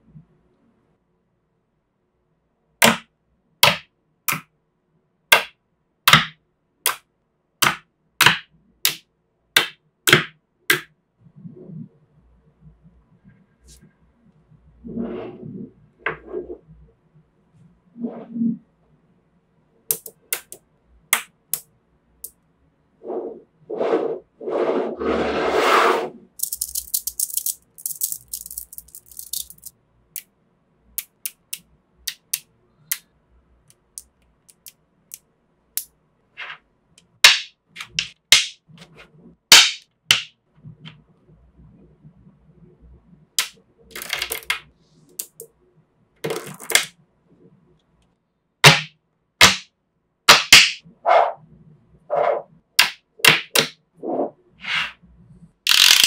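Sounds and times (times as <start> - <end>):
magnetic balls clicking and snapping: 19.9 - 22.4, 26.4 - 30.3, 31.0 - 33.1, 33.7 - 35.9, 43.4 - 45.5, 46.2 - 46.9, 55.7 - 56.0.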